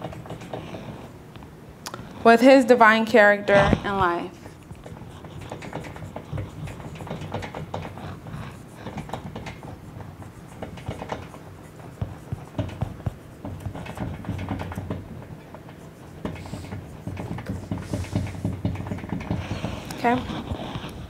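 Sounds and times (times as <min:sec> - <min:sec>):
marker squeaking on whiteboard: 0:00.0 - 0:01.1, 0:03.5 - 0:21.0
steady low hum: 0:00.0 - 0:21.0.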